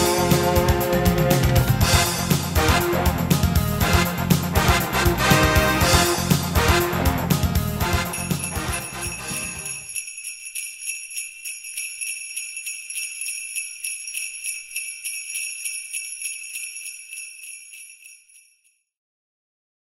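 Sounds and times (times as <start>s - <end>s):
sleigh bells jingling: 0.0s - 3.0s, 7.8s - 18.9s
background music: 0.0s - 9.9s.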